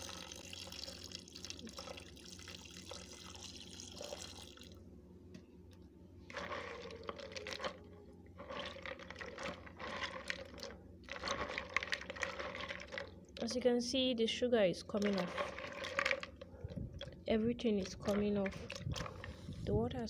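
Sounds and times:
water pouring into bucket: 0.0 - 4.8, 8.4 - 13.2, 15.0 - 16.3.

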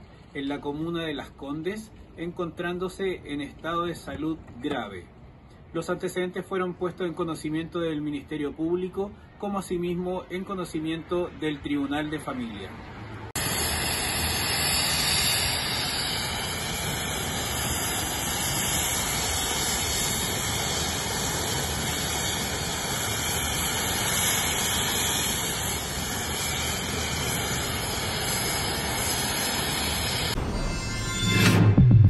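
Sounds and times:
helicopter turbine engine running: 13.4 - 30.6.

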